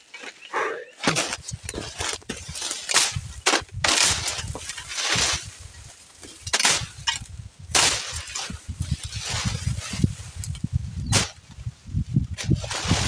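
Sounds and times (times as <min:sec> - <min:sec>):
rustling of vegetation: 0:00.0 - 0:13.0.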